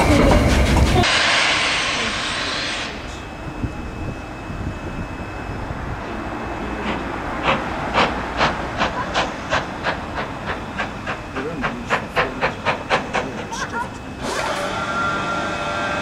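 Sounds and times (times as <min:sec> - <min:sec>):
steam locomotive exhaust beats: 0:00.0 - 0:16.0
hiss of steam: 0:00.3 - 0:03.3.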